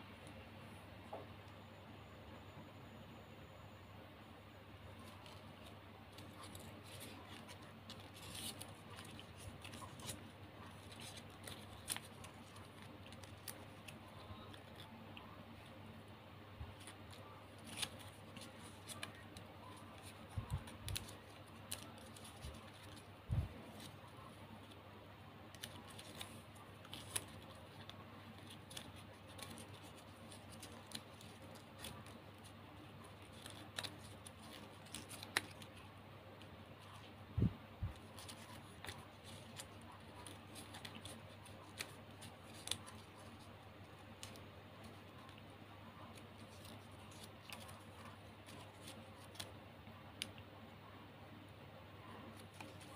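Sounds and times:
faint steady hum: 0.0 - 52.9
plastic ribbon crinkling: 5.0 - 15.8, 16.6 - 24.8, 25.4 - 35.9, 37.8 - 49.5, 52.3 - 52.9.

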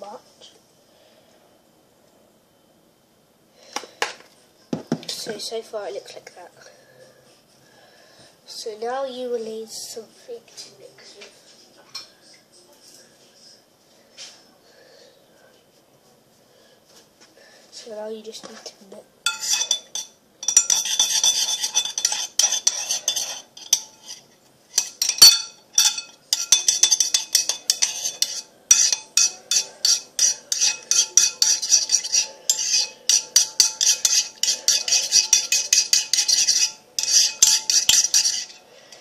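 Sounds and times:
utensil scraping ceramic bowl: 19.3 - 39.0.

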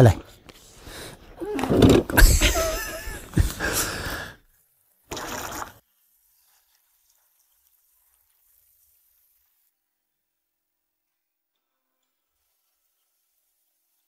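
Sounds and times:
handling noise: 1.4 - 3.8.

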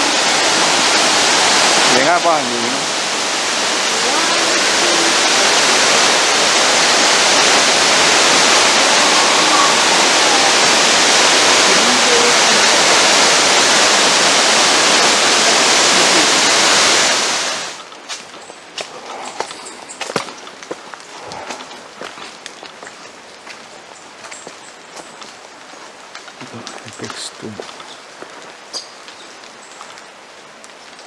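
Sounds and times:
waterfall rushing: 0.0 - 17.9.

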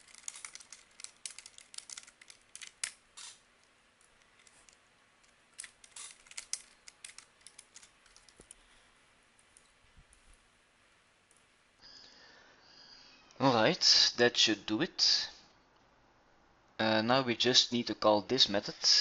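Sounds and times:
computer keyboard typing: 0.0 - 3.0, 5.6 - 8.4.

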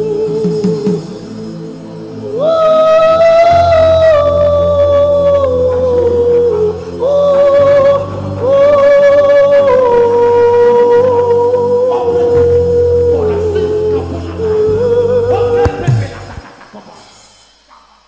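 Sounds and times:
slow gospel worship music: 0.0 - 18.0
sustained bass: 12.4 - 16.5.

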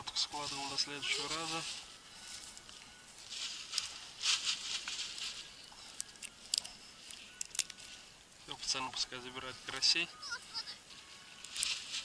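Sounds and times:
rustling: 0.0 - 10.0, 10.7 - 12.0
sharp clicks: 5.9 - 7.9.

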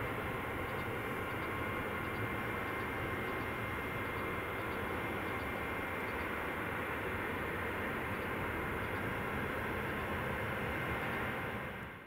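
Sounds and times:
distant jet engines at takeoff: 0.0 - 12.0.

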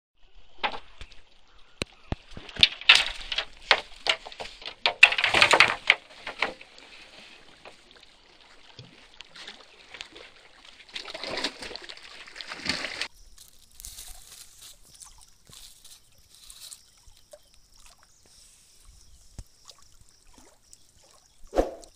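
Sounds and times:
water splashing on rocky shore: 0.6 - 13.1
plastic bag crinkling: 13.3 - 16.8.

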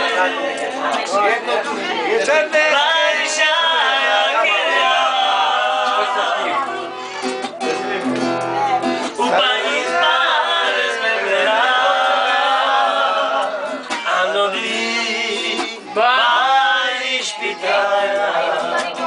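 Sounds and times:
group of people singing: 0.0 - 6.9, 9.0 - 19.0.

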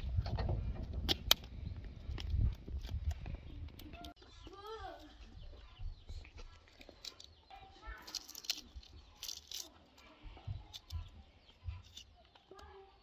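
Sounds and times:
wind rumble on microphone: 0.0 - 4.2
onion skins rustling and crackling: 6.2 - 12.9.

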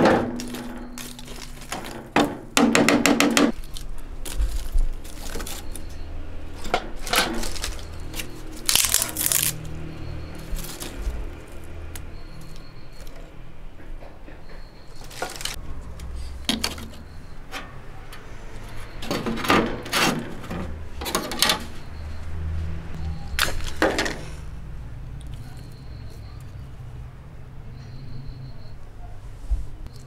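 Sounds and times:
wood clattering against metal: 0.0 - 3.7, 18.8 - 21.8, 23.4 - 24.3
sticks rustling and knocking: 0.0 - 5.9, 6.6 - 9.7, 14.8 - 17.7.

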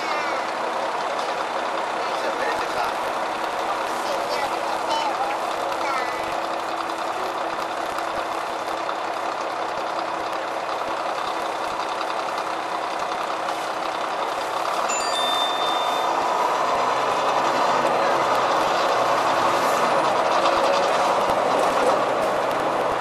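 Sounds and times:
bus diesel engine running: 0.0 - 23.0
short electronic beep: 14.9 - 16.2.

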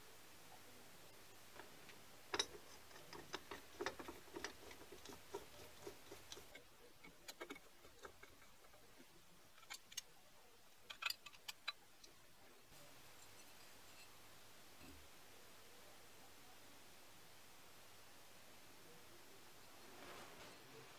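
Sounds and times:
metallic clicks of screws and hex key: 10.9 - 12.2.

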